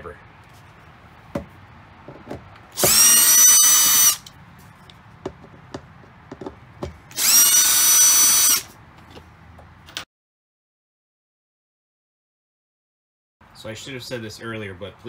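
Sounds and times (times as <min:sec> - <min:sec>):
cordless drill whining: 0:02.8 - 0:04.3, 0:07.1 - 0:08.7.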